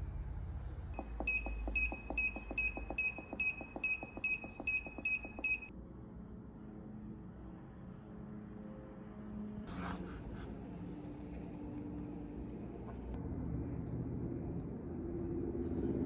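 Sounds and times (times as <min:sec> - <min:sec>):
short high beeps: 0:01.0 - 0:05.7.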